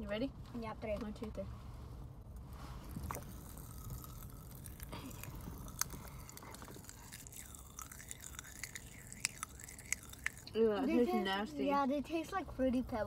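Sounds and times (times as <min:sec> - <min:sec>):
steady low rumble: 0:00.0 - 0:10.7
chewing and crunching candy: 0:02.8 - 0:11.2
mouth clicks: 0:03.0 - 0:10.6.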